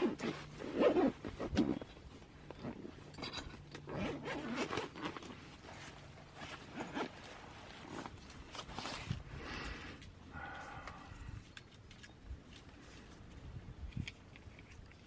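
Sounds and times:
zipper on nylon backpack unzipping: 0.0 - 3.0, 3.8 - 8.1.

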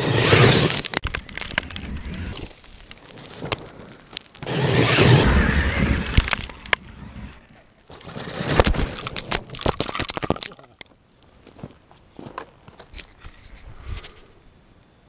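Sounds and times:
tyres rushing through dirt: 0.0 - 7.3, 7.9 - 10.7.

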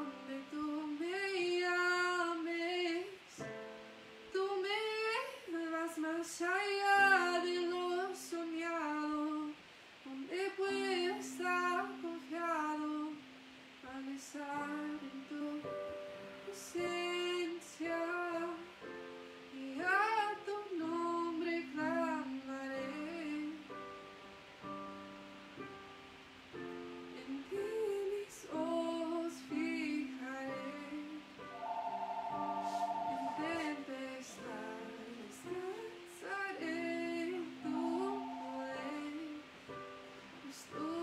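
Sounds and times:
woman singing: 0.0 - 3.6, 4.3 - 23.8, 27.2 - 31.4, 32.7 - 39.6, 40.3 - 41.0
electric keyboard chords: 31.4 - 35.0.

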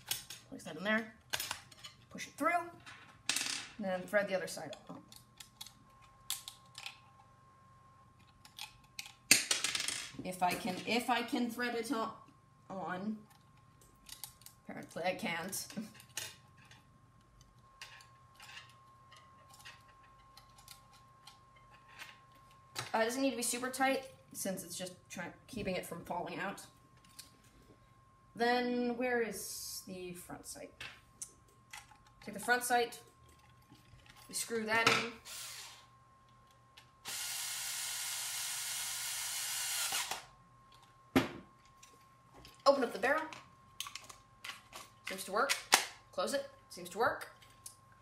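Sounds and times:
small clicks of plastic parts: 4.7 - 7.3, 8.2 - 9.2, 13.3 - 14.6, 41.6 - 45.9.

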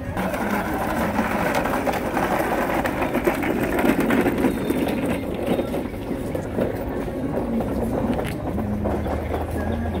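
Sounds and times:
hand cart wheels rolling on asphalt: 0.0 - 10.0.

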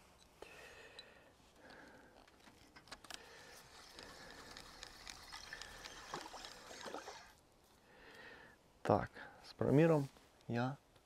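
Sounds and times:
fishing reel clicking and whirring: 3.0 - 7.4.

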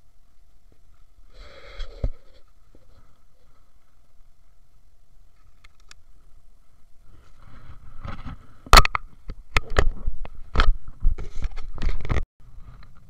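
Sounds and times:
camera handling scrapes and knocks: 7.2 - 9.0, 9.6 - 12.2.

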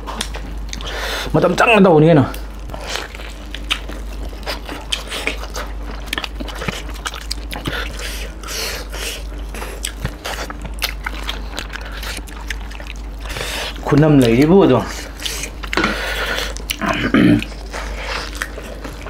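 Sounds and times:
people chewing food: 0.0 - 1.7, 2.3 - 19.0
steady low hum: 0.0 - 19.0.

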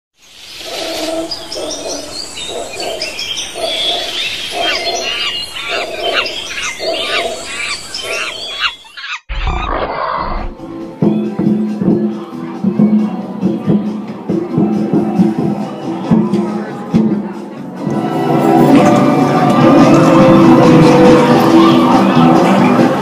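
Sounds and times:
birds chirping and calling: 0.4 - 13.8.

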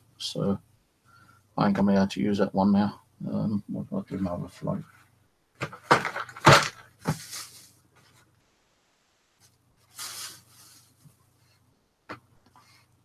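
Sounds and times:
plastic bag rustling: 5.6 - 7.8, 9.8 - 11.0.

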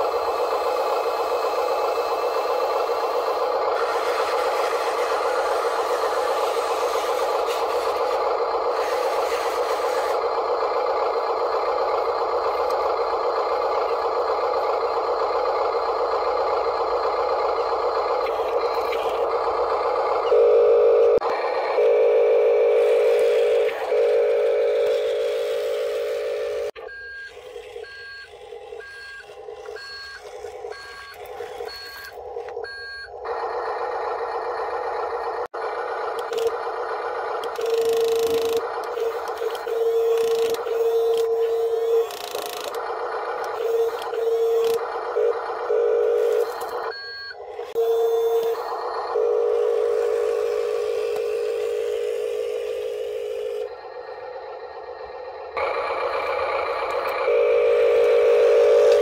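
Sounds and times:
toy vehicle motor buzzing: 0.0 - 10.2, 22.8 - 32.5, 37.4 - 46.9, 47.5 - 53.7
electronic reversing beeps: 20.2 - 33.1, 43.6 - 59.0.

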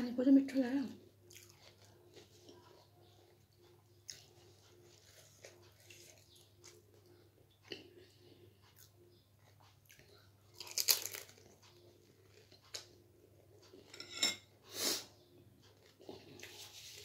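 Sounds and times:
quiet chewing: 1.2 - 14.0, 15.2 - 17.0
crunching snack food: 10.5 - 11.6.

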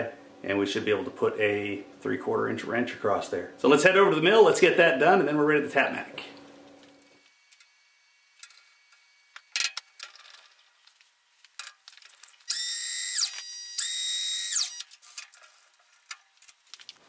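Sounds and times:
small electric motor whining: 12.4 - 15.2.

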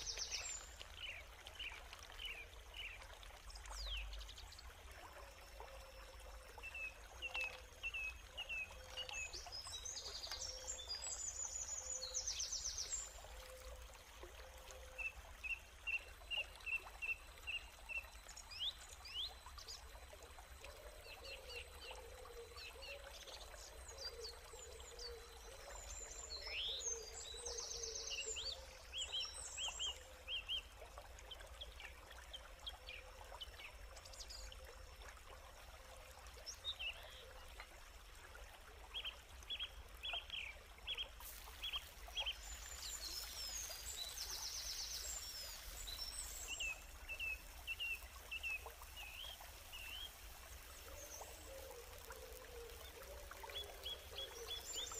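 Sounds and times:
water pouring into a wok: 41.2 - 54.8.

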